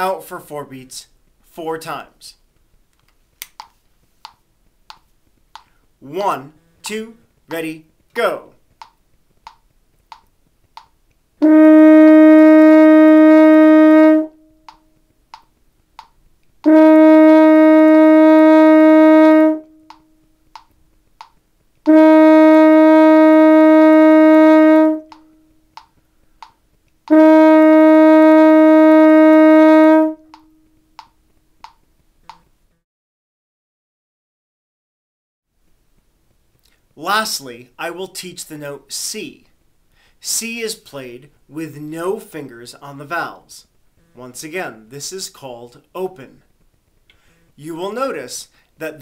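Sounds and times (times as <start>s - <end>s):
faint metronome ticks: 2.6s - 5.8s, 8.7s - 11.2s, 14.6s - 16.6s, 19.6s - 22.0s, 25.1s - 27.2s, 30.3s - 32.5s
french horn held note: 11.4s - 14.5s.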